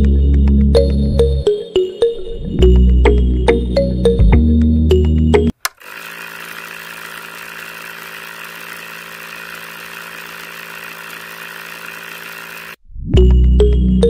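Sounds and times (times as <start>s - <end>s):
small electric motor running: 5.7s - 12.8s.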